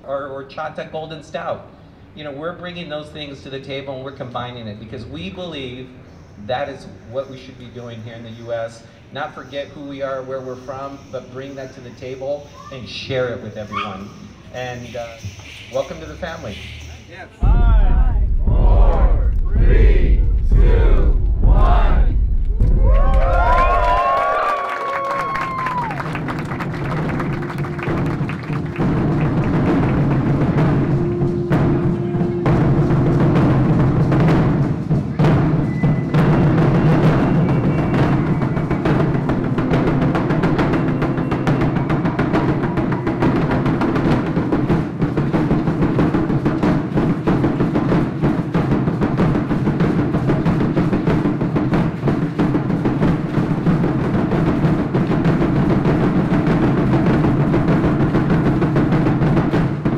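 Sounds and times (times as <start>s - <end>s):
drums beaten in steady rhythm: 13.7s - 24.2s, 25.2s - 59.9s.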